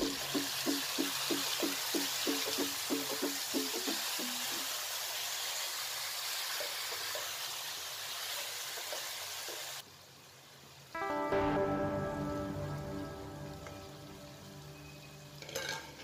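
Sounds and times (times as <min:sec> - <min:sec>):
vegetables sizzling in hot oil: 0:00.0 - 0:10.9, 0:13.1 - 0:16.0
background music: 0:11.0 - 0:16.0.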